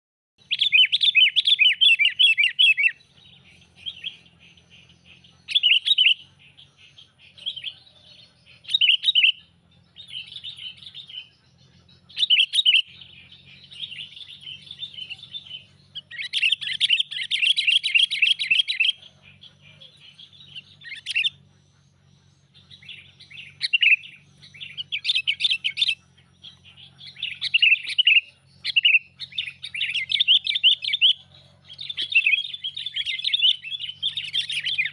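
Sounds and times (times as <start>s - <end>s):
bird chattering calls: 0.4s - 34.9s
faint low hum: 0.4s - 34.9s.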